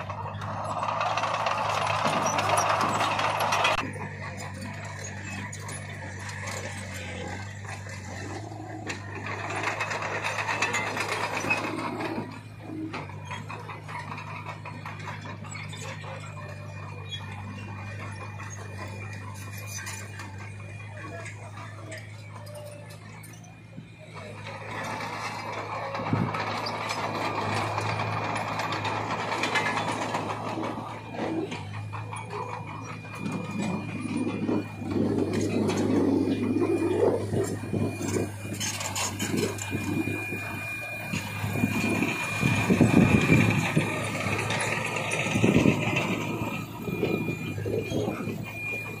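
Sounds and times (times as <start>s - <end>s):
dump truck engines humming: 0.0s - 49.0s
truck body rattling and clattering: 24.6s - 49.0s.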